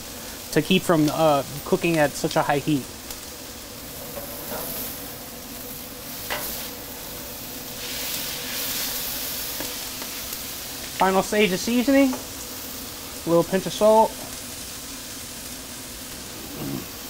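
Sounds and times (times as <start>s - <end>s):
vegetables sizzling on a griddle: 0.0s - 17.0s
metal spatulas scraping: 4.2s - 4.9s.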